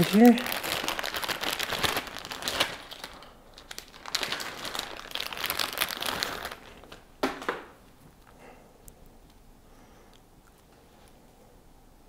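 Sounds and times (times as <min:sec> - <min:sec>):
plastic bag crinkling: 0:00.0 - 0:08.3.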